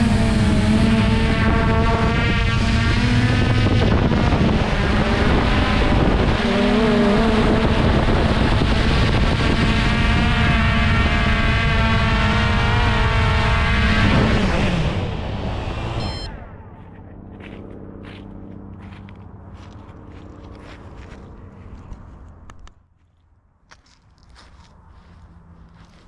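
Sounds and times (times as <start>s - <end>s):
wind buffeting microphone: 0.0s - 15.6s
quadcopter propellers whining: 0.0s - 19.0s.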